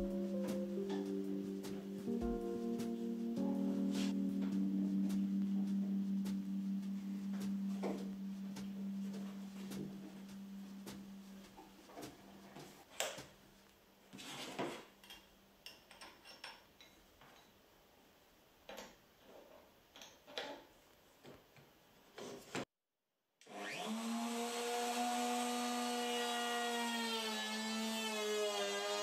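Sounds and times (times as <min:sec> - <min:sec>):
router motor whining: 0:23.4 - 0:29.0.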